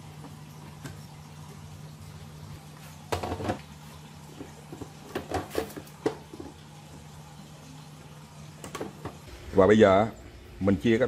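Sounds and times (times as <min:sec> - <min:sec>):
steady low hum: 0:09.2 - 0:11.0.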